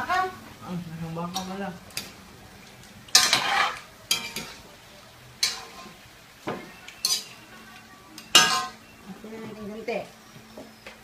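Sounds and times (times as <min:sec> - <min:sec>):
metal spoon scraping metal pot: 0:03.2 - 0:04.4.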